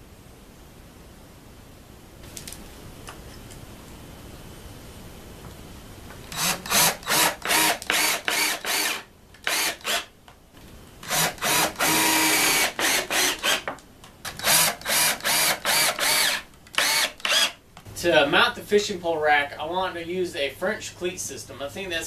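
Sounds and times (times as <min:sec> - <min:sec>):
cordless drill whining: 0:06.3 - 0:10.1, 0:11.0 - 0:13.7, 0:14.3 - 0:17.6.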